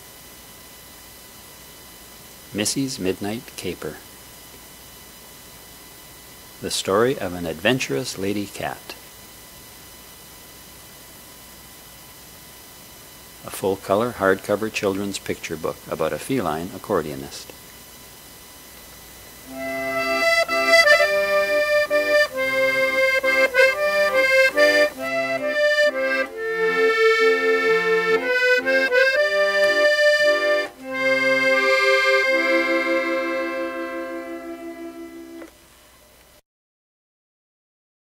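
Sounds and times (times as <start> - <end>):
accordion playing lively tune: 19.5 - 35.5.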